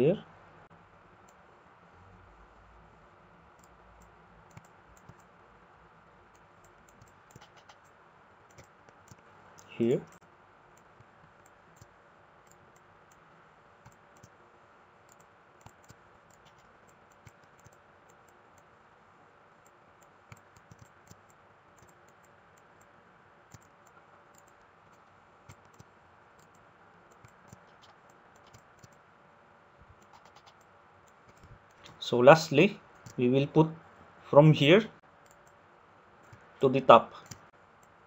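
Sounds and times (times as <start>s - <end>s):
computer mouse clicks: 3.6s - 5.3s, 6.3s - 7.9s, 8.5s - 10.2s, 10.8s - 13.2s, 13.8s - 14.4s, 15.1s - 18.7s, 19.6s - 22.9s, 23.5s - 29.0s, 29.8s - 32.0s, 35.2s - 35.6s, 37.2s - 38.0s.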